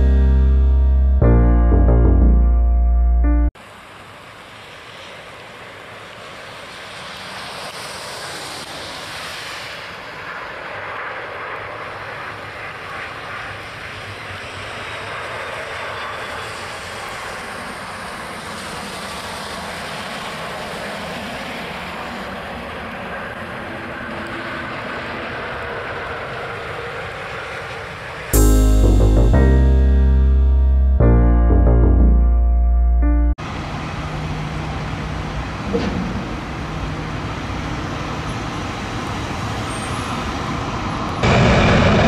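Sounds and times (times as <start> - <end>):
jet engines rushing: 41.1 - 42.0.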